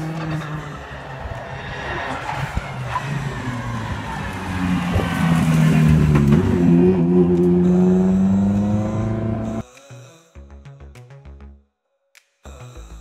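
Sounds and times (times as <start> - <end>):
race car engine running: 0.0 - 9.6.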